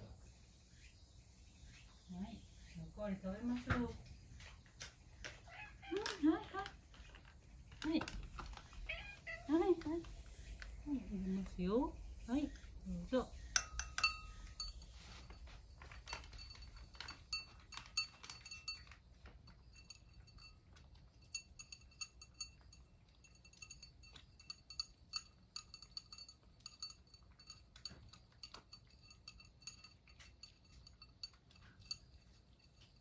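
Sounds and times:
cat eating clinks against dish: 13.4 - 33.0.

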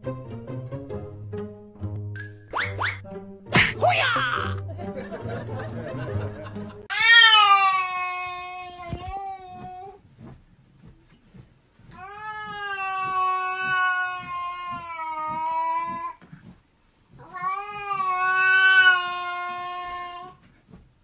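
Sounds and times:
cat yowling: 6.9 - 9.7, 12.0 - 16.2, 17.2 - 20.4.

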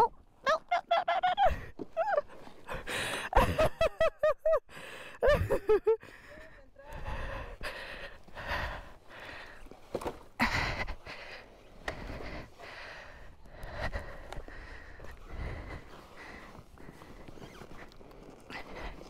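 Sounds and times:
breathy noise: 6.0 - 19.0.

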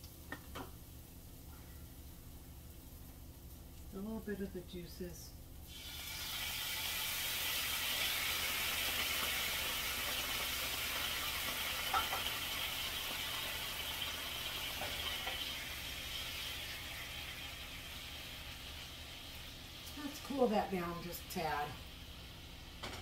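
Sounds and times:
juices sizzling in frying pan: 0.0 - 23.0.

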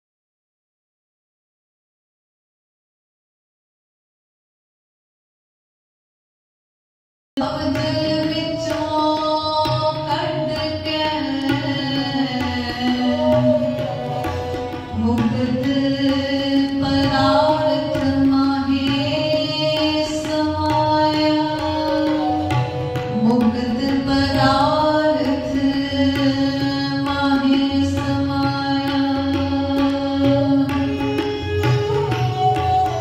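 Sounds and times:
tabla rhythm: 7.4 - 33.0
bowed string instruments: 9.6 - 20.8, 21.4 - 33.0.

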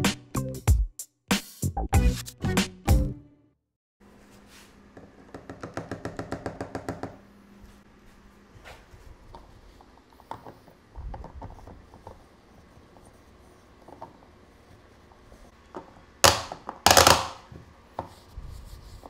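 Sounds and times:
paper towel rubbing: 18.2 - 19.0.

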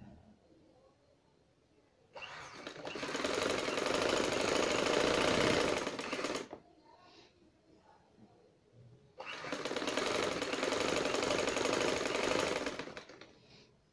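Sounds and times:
sewing machine needle clatter: 2.2 - 6.6, 9.2 - 13.3.

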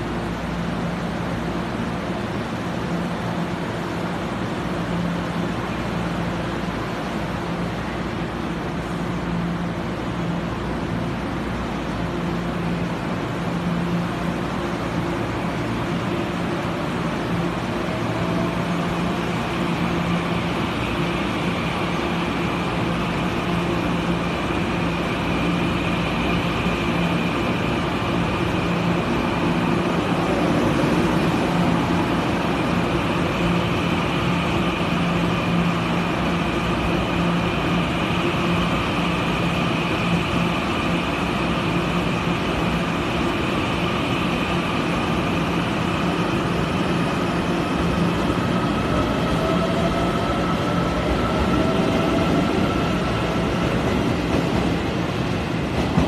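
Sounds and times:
electric train pulling out: 14.2 - 56.0.

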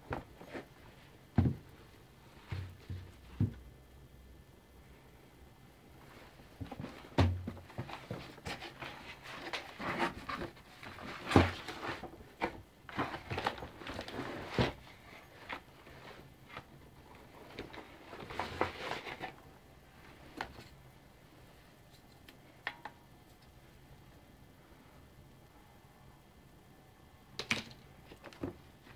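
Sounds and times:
cardboard box rustling and scraping: 6.6 - 19.4.

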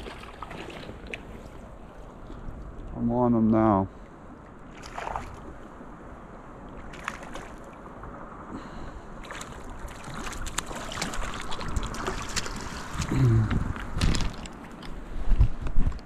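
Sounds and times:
creek water running: 0.0 - 4.0, 9.2 - 15.0
fish splashing at the surface: 9.2 - 13.1.

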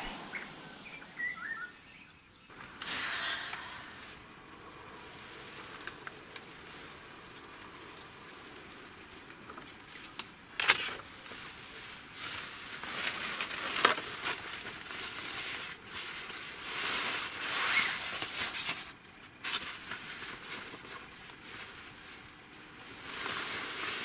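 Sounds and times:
straw crackling: 2.5 - 24.0
nylon backpack rustling: 12.0 - 24.0.

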